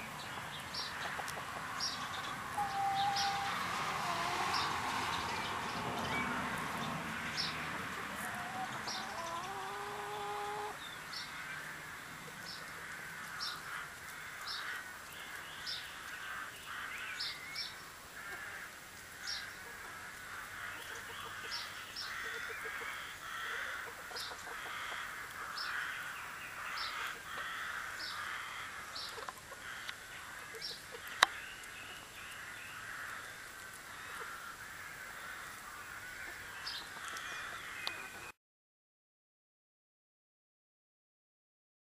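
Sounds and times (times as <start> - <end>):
hens clucking: 0.9 - 6.1, 7.4 - 10.8, 19.6 - 25.5.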